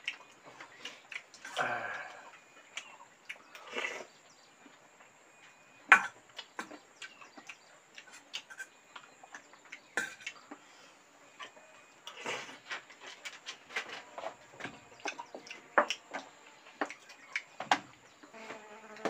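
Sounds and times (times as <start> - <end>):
wet mouth clicks while chewing: 0.0 - 1.6, 6.4 - 10.6
rustling or slurping: 12.0 - 14.6.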